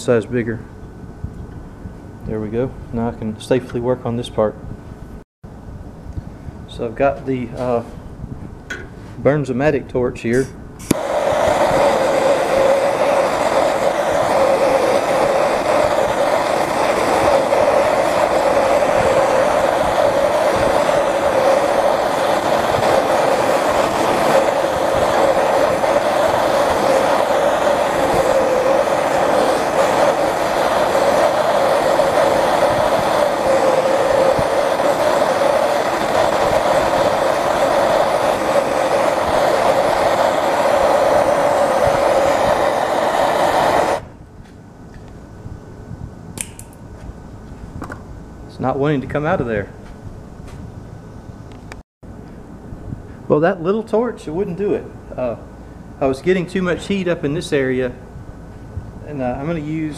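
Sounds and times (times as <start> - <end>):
hand torch flame hissing: 10.2 - 44.2, 54.0 - 59.9.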